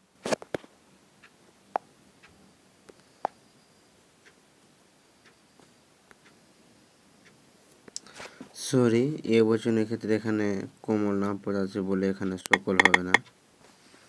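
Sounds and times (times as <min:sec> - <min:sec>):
low room hiss: 0:00.0 - 0:14.0
faint ticks: 0:01.2 - 0:04.4, 0:05.2 - 0:06.5, 0:07.2 - 0:08.2
sharp clicks: 0:12.4 - 0:13.2.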